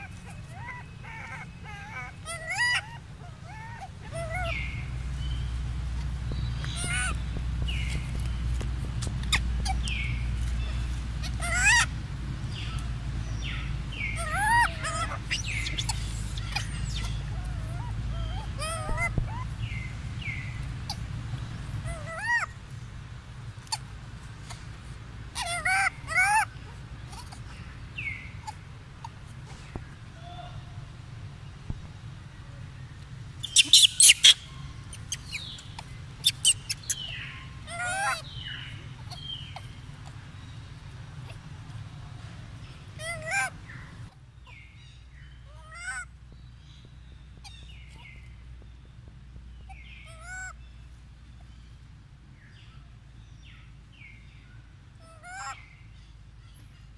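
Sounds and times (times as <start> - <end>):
macaque squeaky calls: 0.0 - 5.4, 6.6 - 8.3, 9.0 - 11.9, 12.5 - 21.1, 21.8 - 22.6, 25.3 - 30.7, 33.4 - 40.2, 43.0 - 44.8, 45.4 - 46.1, 49.7 - 50.6, 55.0 - 55.7
falling whistle-like calls: 33.4 - 35.5.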